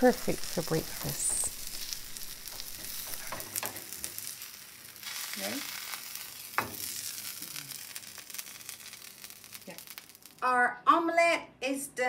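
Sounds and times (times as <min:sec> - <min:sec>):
omelette sizzling in frying pan: 0:00.0 - 0:10.5
spatula scraping pan: 0:00.5 - 0:04.4.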